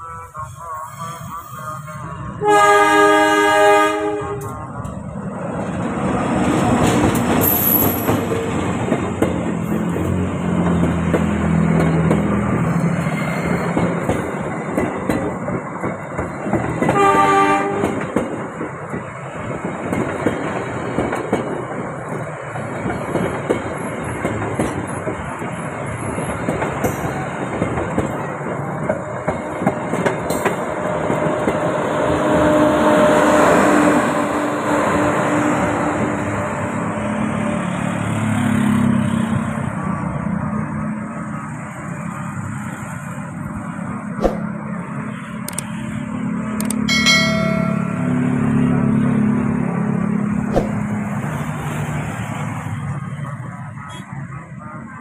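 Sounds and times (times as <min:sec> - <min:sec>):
train horn blast: 0:00.0 - 0:04.6, 0:16.9 - 0:18.0
train rumble: 0:00.0 - 0:55.0
steady tone: 0:46.9 - 0:48.5.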